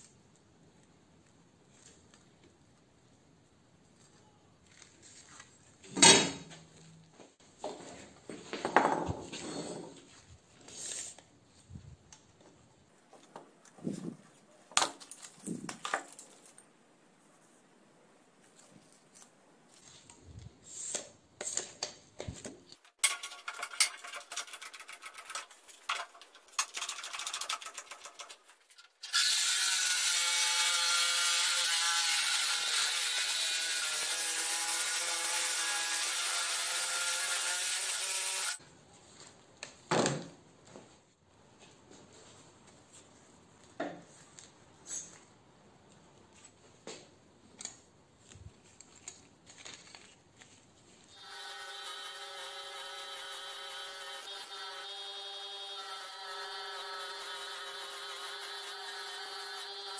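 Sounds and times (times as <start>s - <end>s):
steel plates and tools clinking: 9.3s - 10.1s, 22.9s - 29.1s
reciprocating saw cutting steel: 23.0s - 38.6s, 51.1s - 59.9s.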